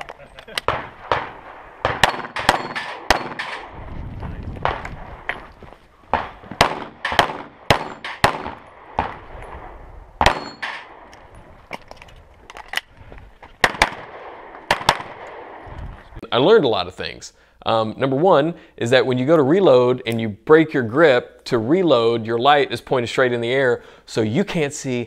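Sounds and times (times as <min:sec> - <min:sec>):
pistol shots: 0:00.6 - 0:03.8, 0:06.1 - 0:11.2, 0:13.6 - 0:15.6.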